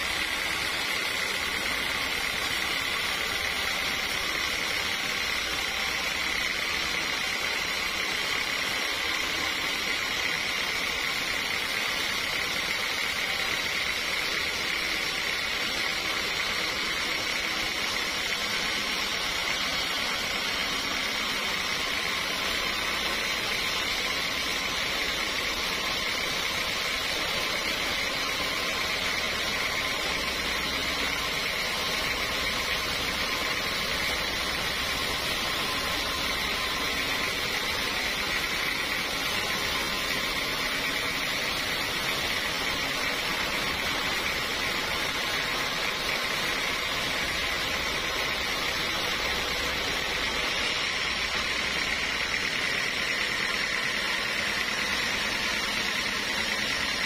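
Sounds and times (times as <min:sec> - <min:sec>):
band saw cutting log: 0:00.0 - 0:57.0.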